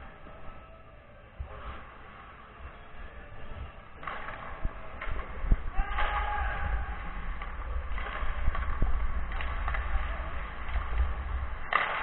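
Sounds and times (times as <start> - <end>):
ice skates scraping: 0.0 - 12.0
camera rumble: 4.0 - 12.0.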